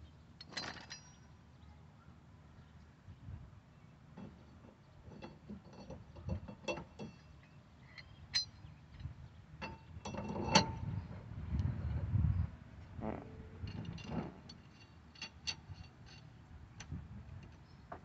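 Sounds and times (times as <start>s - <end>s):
metal tools clinking: 0.4s - 1.2s, 4.2s - 8.6s, 13.6s - 16.4s.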